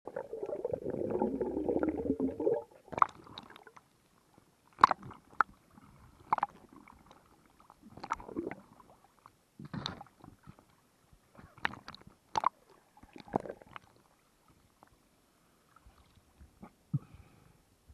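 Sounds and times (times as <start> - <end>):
rush of water and bubbles: 0.1 - 3.8, 4.8 - 9.0, 11.6 - 14.0
soft swishes of moving water: 0.1 - 17.9
sharp clicks underwater: 2.4 - 3.9, 4.7 - 5.6, 6.2 - 7.2, 7.9 - 8.6, 11.4 - 14.0.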